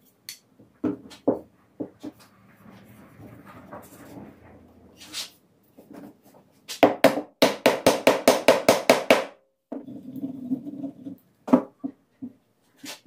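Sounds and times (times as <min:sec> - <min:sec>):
wooden mallet knocking wood: 0:06.8 - 0:09.4.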